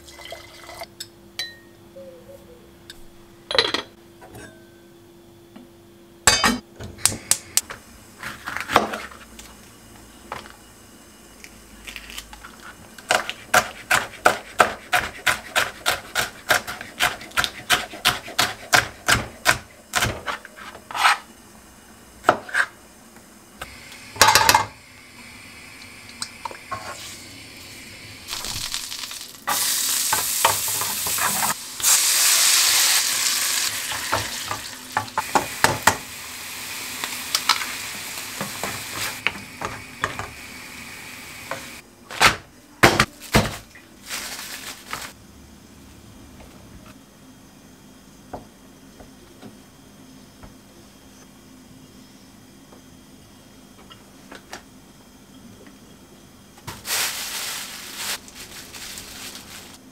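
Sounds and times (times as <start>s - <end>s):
knife chopping on plastic board: 13.1s - 20.4s
butter sizzling in frying pan: 25.7s - 41.8s.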